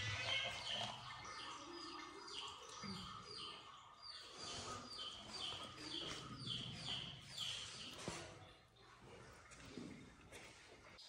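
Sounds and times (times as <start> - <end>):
bird chirping: 0.0 - 8.1.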